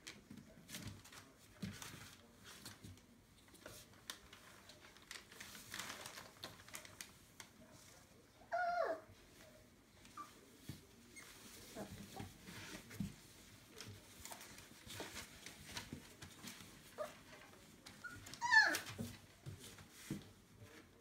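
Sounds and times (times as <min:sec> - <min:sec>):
puppies shuffling on newspaper: 0:00.0 - 0:21.0
puppies whimpering and squeaking: 0:08.5 - 0:09.1, 0:18.0 - 0:19.0
puppy whining: 0:08.5 - 0:09.1, 0:18.0 - 0:19.0.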